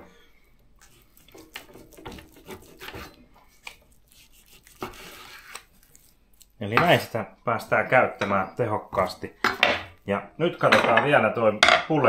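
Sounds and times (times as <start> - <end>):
knife scraping board: 0.8 - 6.1
knife rasping through meat: 0.8 - 7.1.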